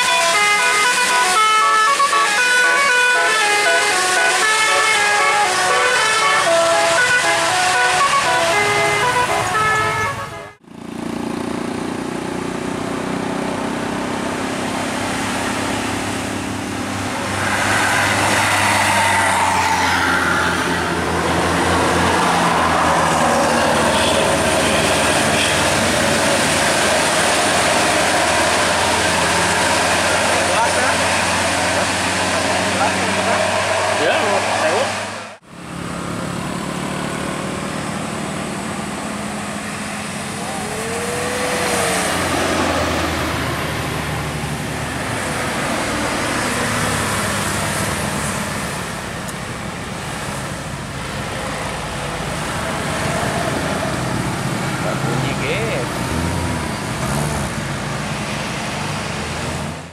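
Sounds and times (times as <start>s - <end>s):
multi-tone bus horn tune: 0.0s - 10.6s, 19.2s - 27.2s
bus engine running: 0.0s - 59.9s
tyre and road noise: 0.0s - 59.9s.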